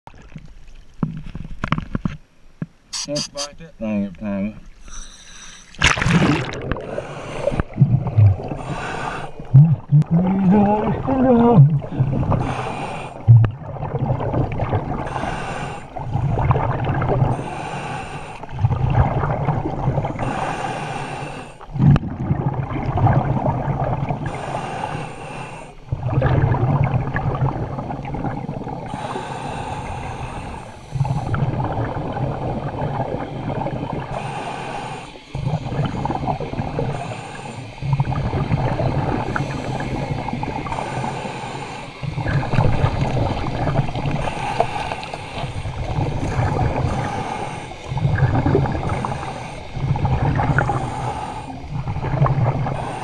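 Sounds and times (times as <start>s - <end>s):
scuba regulator breathing: 2.9s - 3.5s, 4.8s - 5.8s, 6.4s - 7.8s, 8.4s - 9.5s, 12.2s - 13.3s, 15.0s - 16.2s, 17.2s - 18.6s, 20.0s - 21.7s, 24.2s - 25.9s, 28.9s - 31.4s, 34.1s - 38.1s, 39.1s - 42.5s, 43.9s - 51.7s, 52.6s - 53.0s.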